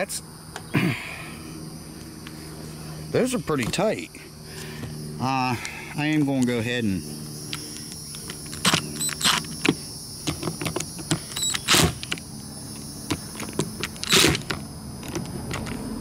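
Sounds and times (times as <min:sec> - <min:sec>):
cordless drill driving screws: 0:08.5 - 0:09.5, 0:11.3 - 0:12.1, 0:14.0 - 0:14.5.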